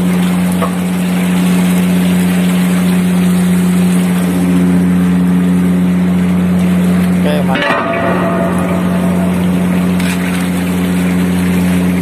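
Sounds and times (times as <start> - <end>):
ship machinery humming: 0.0 - 12.0.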